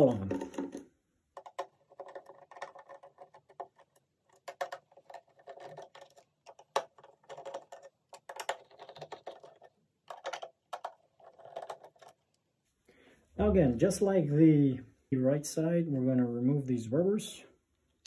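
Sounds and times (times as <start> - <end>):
fingernails scratching plastic: 1.4 - 12.2.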